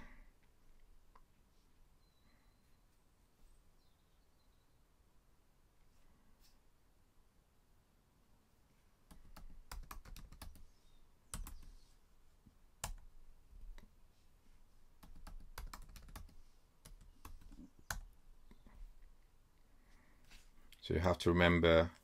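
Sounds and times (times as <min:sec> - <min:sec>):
typing on a keyboard: 0:09.1 - 0:10.7, 0:11.3 - 0:11.7, 0:12.8 - 0:13.1, 0:15.0 - 0:18.1.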